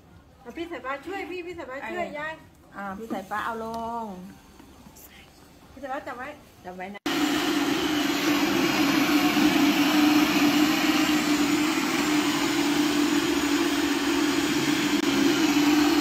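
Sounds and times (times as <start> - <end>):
blender motor whirring: 7.1 - 16.0.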